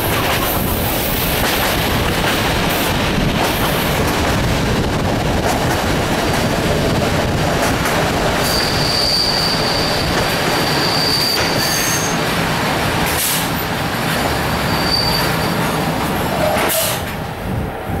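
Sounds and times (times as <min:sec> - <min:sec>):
train wheels rumbling: 0:00.0 - 0:18.0
high wheel squeal: 0:08.4 - 0:12.2, 0:14.5 - 0:17.0.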